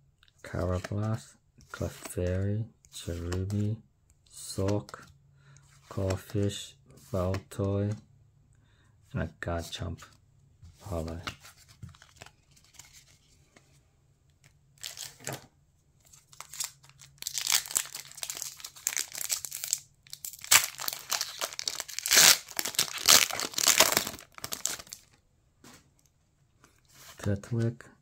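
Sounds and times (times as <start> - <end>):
foil wrapper crinkling and tearing: 16.2 - 25.2.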